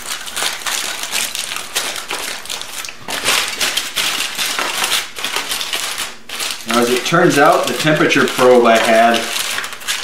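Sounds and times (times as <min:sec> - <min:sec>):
aluminum foil crinkling: 0:00.0 - 0:10.0.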